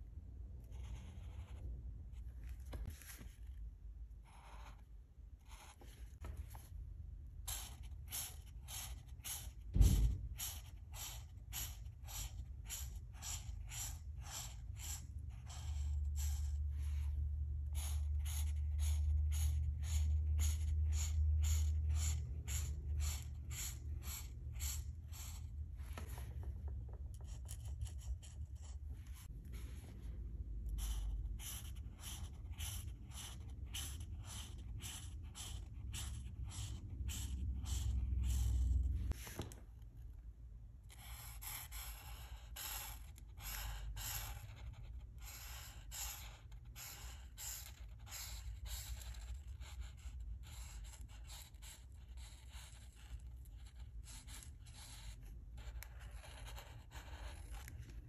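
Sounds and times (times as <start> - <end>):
marker scratching on paper: 0.0 - 3.3, 4.2 - 6.7, 7.3 - 39.6, 40.9 - 58.0
low thump: 9.7 - 10.4.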